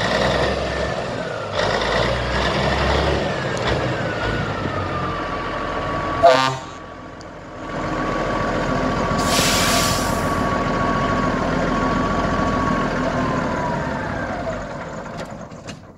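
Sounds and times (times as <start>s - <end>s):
diesel engine revving: 0.0s - 15.5s
air hiss: 9.2s - 10.4s.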